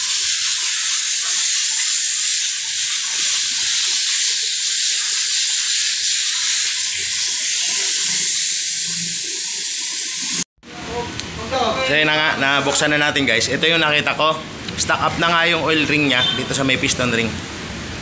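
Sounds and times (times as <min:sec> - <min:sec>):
compressed-air blow gun hissing: 0:00.0 - 0:10.4.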